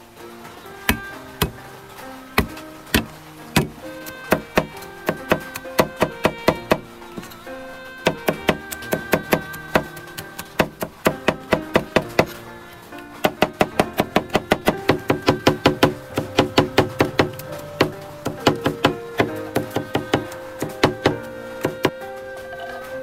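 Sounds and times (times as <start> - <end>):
background music: 0.0 - 23.0
knife chopping on wooden board: 13.3 - 22.0.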